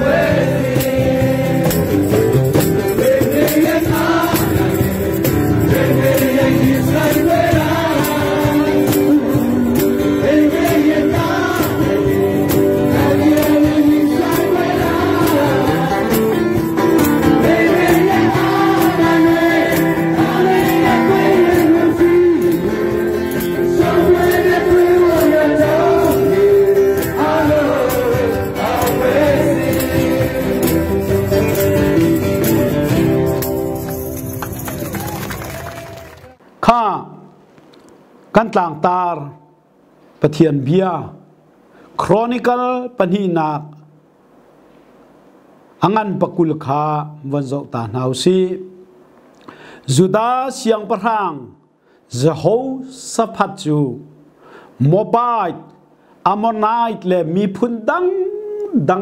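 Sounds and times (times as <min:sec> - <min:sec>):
men singing in unison: 0:00.0 - 0:31.6
strummed acoustic guitars: 0:00.0 - 0:35.5
tambourine shaking: 0:00.4 - 0:36.1.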